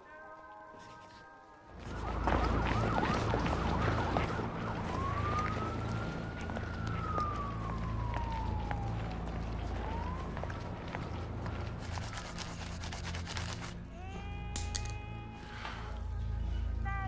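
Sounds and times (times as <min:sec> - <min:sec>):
police siren wailing: 0:01.4 - 0:11.8
low traffic rumble: 0:01.8 - 0:13.9.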